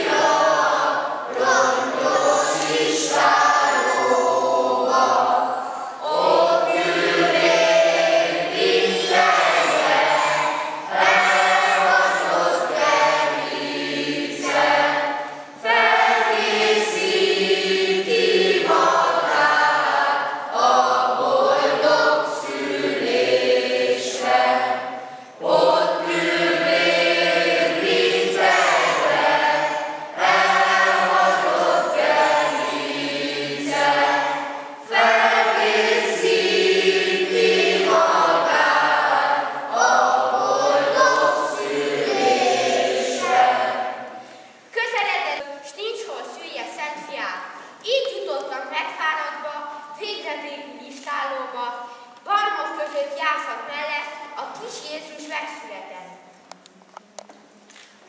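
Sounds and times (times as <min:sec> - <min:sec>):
choir singing: 0:00.0 - 0:44.4.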